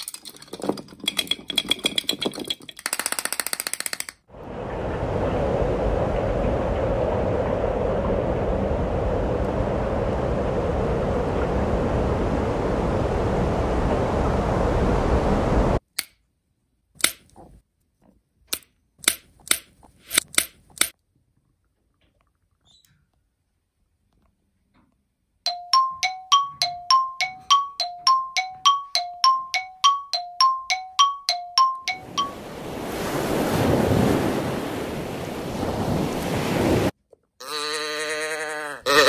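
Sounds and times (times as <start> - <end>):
sharp clicks: 2.8 - 4.3
two-note chime: 25.5 - 32.6.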